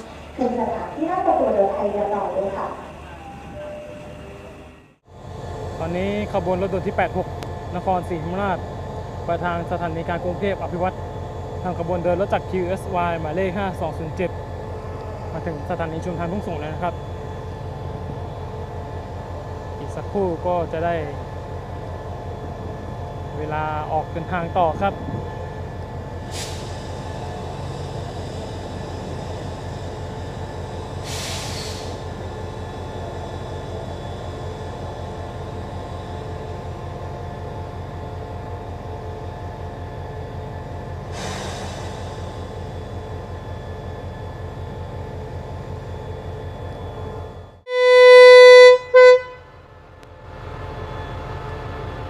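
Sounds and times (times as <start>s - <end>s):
locomotive horn blasts: 47.7s - 49.6s.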